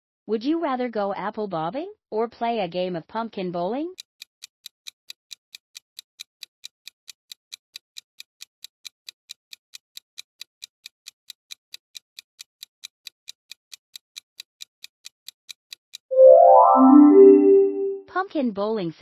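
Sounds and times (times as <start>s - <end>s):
clock ticking sound effect: 9.3s - 18.0s.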